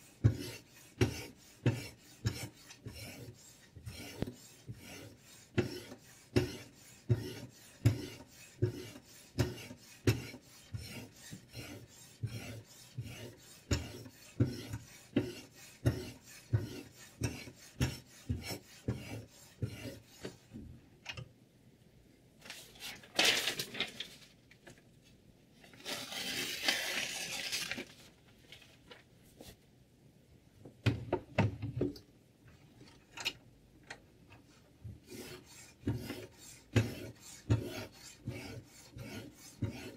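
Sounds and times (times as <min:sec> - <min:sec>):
rubbing scrapes: 0:00.0 - 0:20.6.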